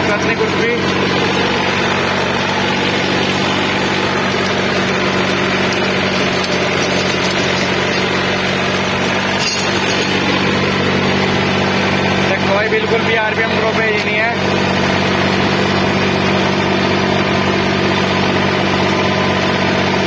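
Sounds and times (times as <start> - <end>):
tractor diesel engine running: 0.0 - 20.0
rotavator churning soil: 0.8 - 12.3.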